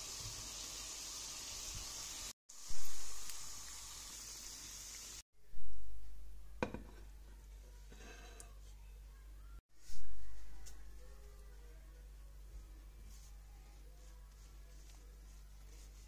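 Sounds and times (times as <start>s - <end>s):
oil sizzling in a pan: 0.0s - 5.2s.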